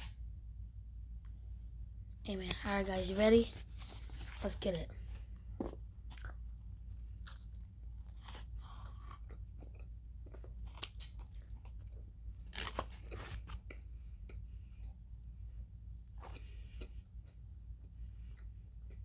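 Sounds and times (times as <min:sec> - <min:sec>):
steady low hum: 0:00.0 - 0:19.0
person chewing burger: 0:05.7 - 0:19.0.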